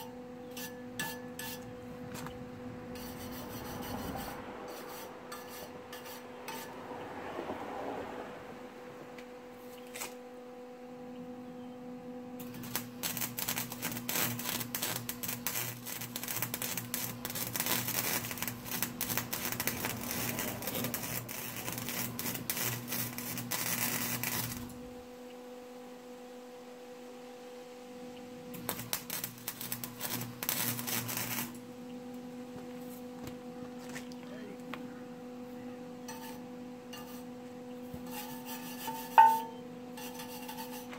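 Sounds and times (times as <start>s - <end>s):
steady hum: 0.0s - 6.8s, 8.3s - 40.9s
welder arc crackling: 12.4s - 25.1s, 28.4s - 31.7s.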